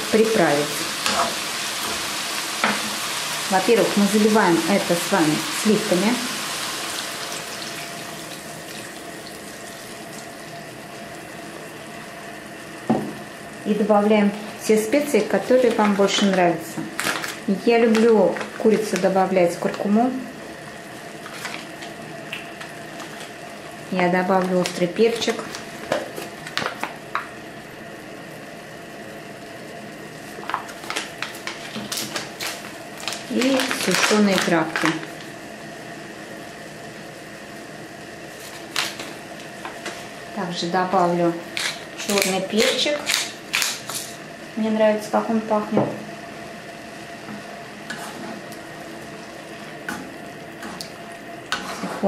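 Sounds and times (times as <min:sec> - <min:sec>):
sauce sizzling in a frying pan: 0:00.0 - 0:16.7
food sizzling in frying pan: 0:00.0 - 0:44.7
spice packet crackling: 0:30.5 - 0:35.4, 0:41.5 - 0:44.1.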